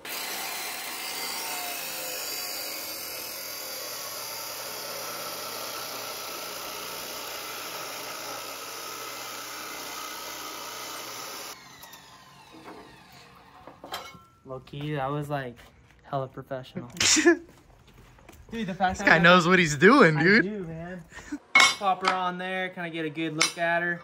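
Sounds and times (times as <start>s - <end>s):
chop saw cutting steel: 0.0s - 13.8s.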